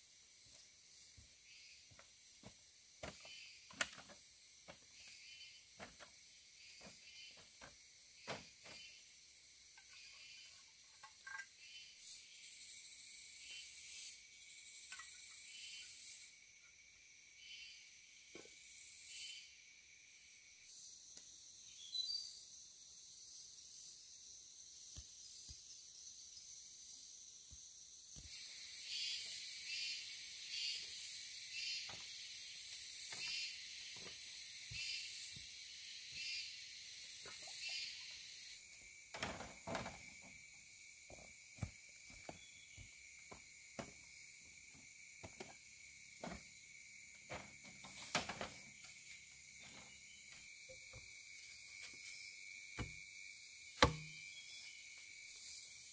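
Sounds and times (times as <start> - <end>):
insects trilling: 0.0 - 55.9
pulsing insect chorus: 0.0 - 55.9
footsteps on bamboo platform: 1.2 - 8.9, 33.0 - 35.6, 41.1 - 46.6.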